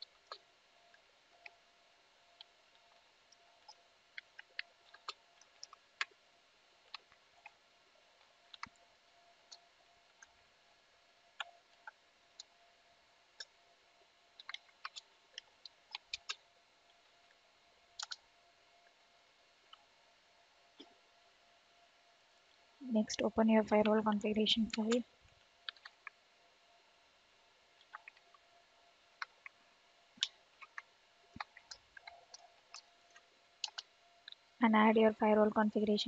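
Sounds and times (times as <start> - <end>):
faint steady hum: 0.0 - 36.0.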